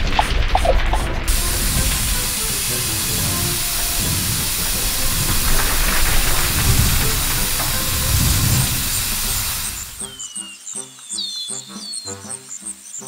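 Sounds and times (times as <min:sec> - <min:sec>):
water spraying from nozzle: 0:00.0 - 0:10.2.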